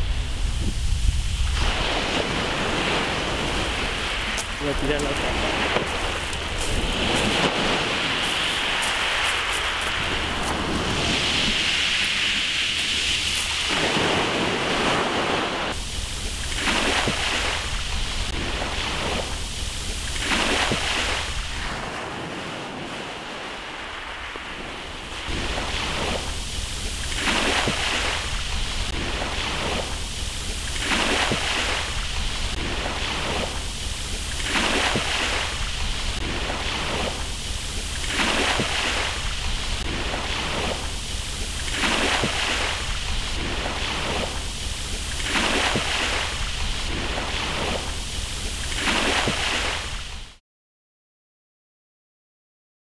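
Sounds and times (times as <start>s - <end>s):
wind buffeting microphone: 0.0s - 20.0s
small waves on pebble shore: 0.0s - 50.2s.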